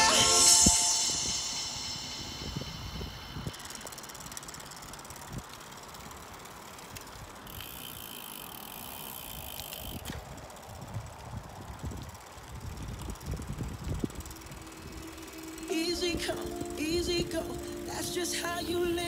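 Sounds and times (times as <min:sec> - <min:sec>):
faint steady whine: 0:00.0 - 0:08.0, 0:13.2 - 0:19.0
tyre and road noise: 0:02.0 - 0:16.7
wind buffeting microphone: 0:10.0 - 0:15.2.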